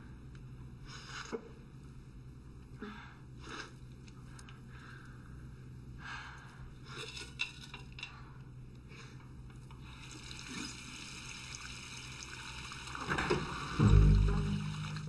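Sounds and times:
toilet flushing: 10.0 - 15.0.

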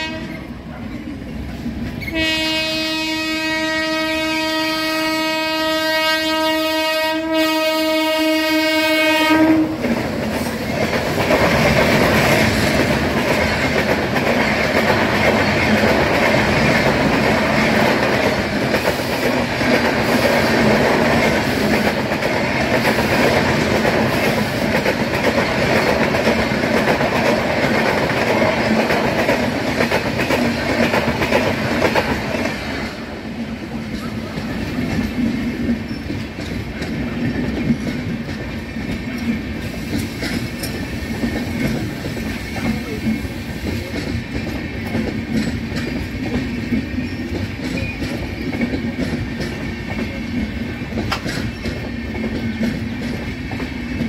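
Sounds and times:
locomotive horn blast: 0.0 - 0.5, 2.0 - 9.8
train rushing past: 0.0 - 54.0
train wheels clattering over rails: 6.7 - 54.0.

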